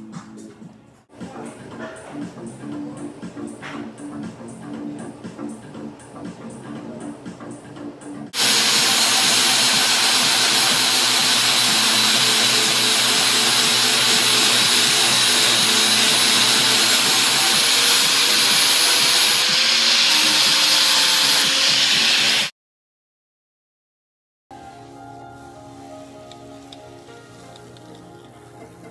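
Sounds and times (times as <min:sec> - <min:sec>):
angle grinder grinding metal: 0:08.4 - 0:22.5.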